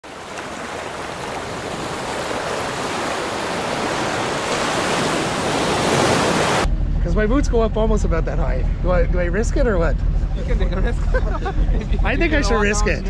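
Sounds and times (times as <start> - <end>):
ocean surf rushing: 0.0 - 6.7.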